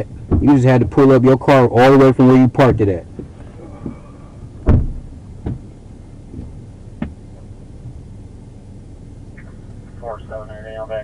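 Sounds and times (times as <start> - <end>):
low steady car hum: 0.0 - 11.0
dull knocks: 0.3 - 0.6, 2.6 - 5.7, 6.3 - 7.2.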